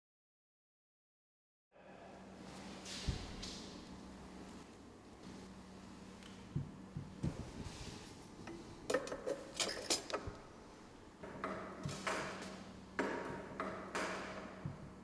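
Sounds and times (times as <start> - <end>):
metal parts scraping: 9.2 - 10.2.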